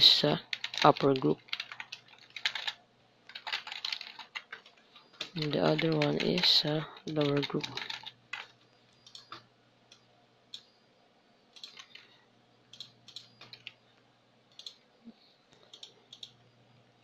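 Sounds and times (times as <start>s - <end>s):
keyboard typing: 0.4s - 9.5s, 11.5s - 13.8s, 14.5s - 14.8s, 15.6s - 16.4s.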